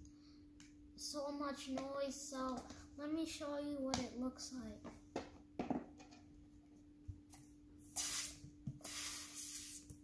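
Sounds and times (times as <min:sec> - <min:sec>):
air hissing out of balloon: 0:07.9 - 0:10.0.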